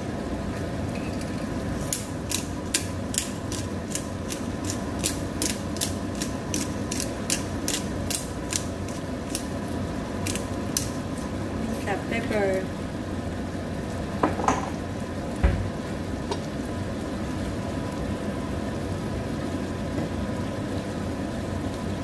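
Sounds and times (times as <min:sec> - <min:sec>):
pepper grinder ratcheting: 0:01.9 - 0:09.5, 0:10.2 - 0:10.9.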